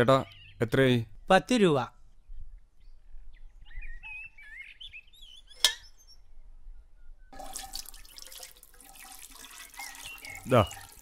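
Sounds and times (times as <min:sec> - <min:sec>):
small birds chirping: 0:00.0 - 0:07.4, 0:09.3 - 0:11.0
tea pouring into vessel: 0:07.4 - 0:11.0.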